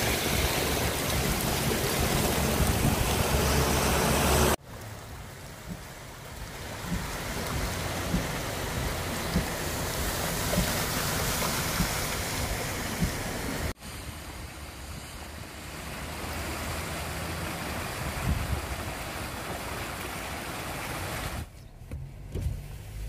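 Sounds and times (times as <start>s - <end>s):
stream rushing over rocks: 0.0s - 21.5s
car driving through floodwater: 0.0s - 23.0s
low thumps: 6.9s - 9.8s.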